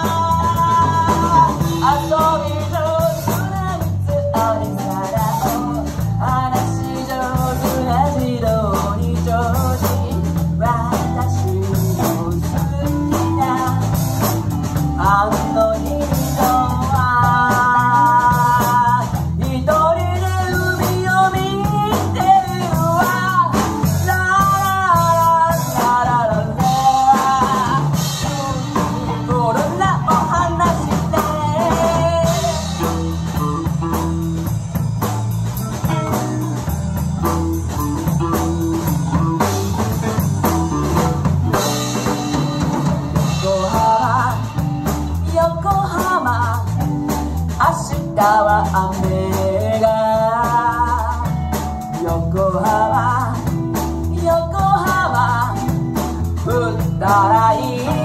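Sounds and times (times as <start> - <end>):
live band playing: 0.0 - 58.0.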